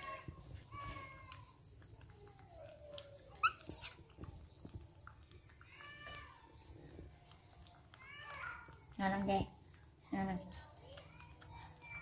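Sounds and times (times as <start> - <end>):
baby monkey cooing: 2.9 - 4.0
baby monkey whimper: 3.3 - 4.0
high-pitched monkey squeals: 3.3 - 4.0.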